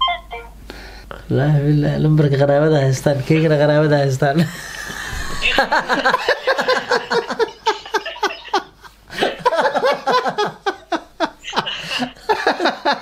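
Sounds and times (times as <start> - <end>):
men laughing heartily: 4.4 - 13.0.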